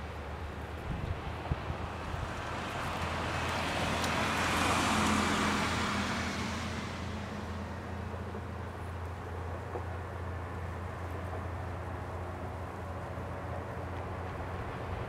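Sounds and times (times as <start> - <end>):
low engine hum: 0.0 - 15.0
vehicle passing close by: 1.1 - 8.5.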